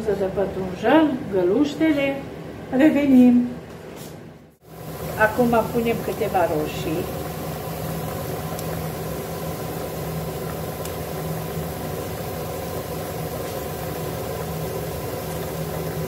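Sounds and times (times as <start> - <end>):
machine hum: 4.6 - 16.0.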